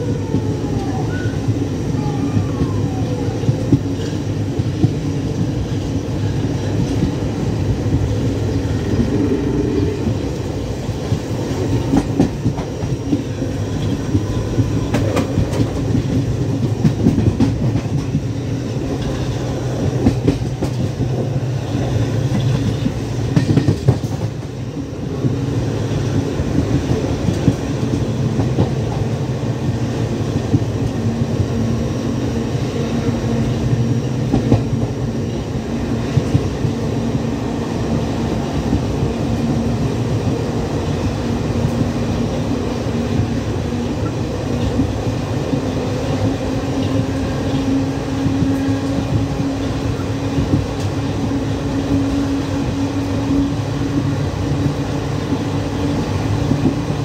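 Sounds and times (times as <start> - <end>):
train rumble: 0.0 - 57.0
wheels knocking on rails: 11.0 - 24.6.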